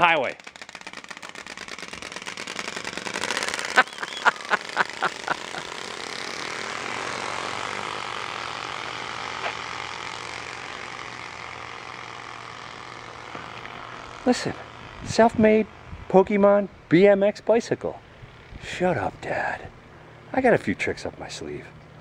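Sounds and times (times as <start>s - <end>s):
cards flapping against bike spokes: 0.0s - 15.2s.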